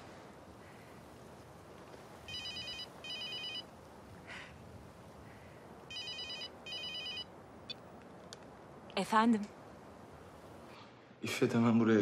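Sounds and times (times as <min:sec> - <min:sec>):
mobile phone ringing: 0:02.3 - 0:03.7, 0:05.9 - 0:07.3.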